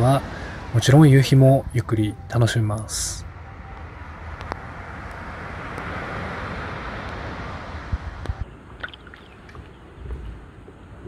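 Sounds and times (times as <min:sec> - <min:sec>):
wind rumble on microphone: 0:03.8 - 0:11.0
small waves washing on beach: 0:04.9 - 0:11.0.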